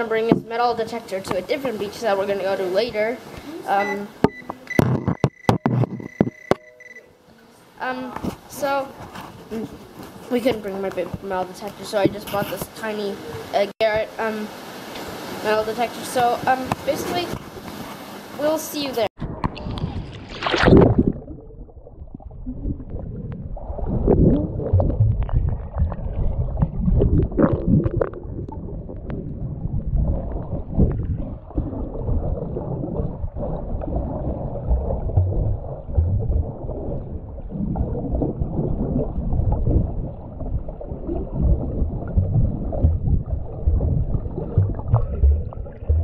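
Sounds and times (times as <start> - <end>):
muffled rumble of moving water: 19.1 - 46.0
bright bubble sounds: 19.2 - 46.0
bubbly gurgles: 19.2 - 46.0.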